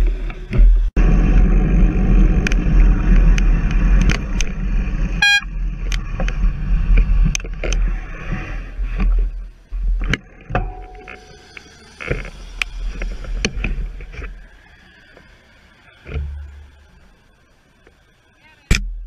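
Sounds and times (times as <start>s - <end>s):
high beep: 5.2s - 5.5s
short steady tone: 5.2s - 5.5s.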